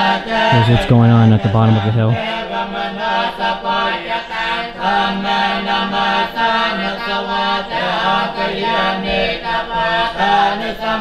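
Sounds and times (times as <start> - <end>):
voices chanting prayers: 0.0 - 11.0.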